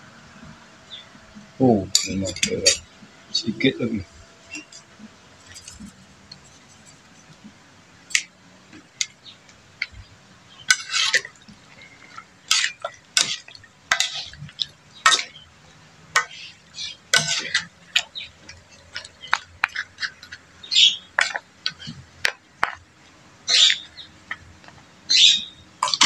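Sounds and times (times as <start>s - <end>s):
utensils scraping a wok: 4.4s - 7.3s, 10.6s - 15.4s, 16.2s - 21.9s.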